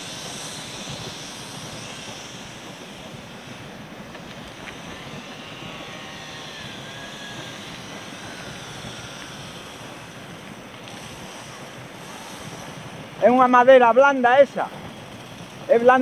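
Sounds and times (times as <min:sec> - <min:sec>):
faint wavering whine: 0:00.0 - 0:16.0
wind buffeting microphone: 0:00.0 - 0:16.0.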